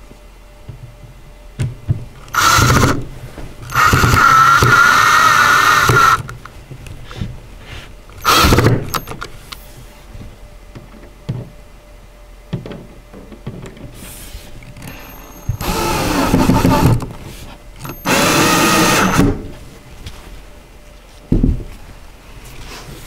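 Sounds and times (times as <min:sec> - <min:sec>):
electric drill driving screws: 0:02.3 - 0:03.0, 0:03.7 - 0:06.3, 0:08.2 - 0:09.1, 0:14.8 - 0:17.1, 0:17.8 - 0:19.4.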